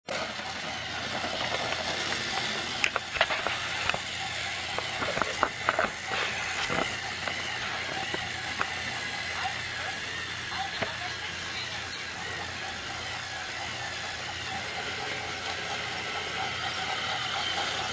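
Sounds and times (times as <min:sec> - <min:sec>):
toy train motor whirring: 0:00.1 - 0:17.9
clicks and knocks on plastic track: 0:01.1 - 0:08.8.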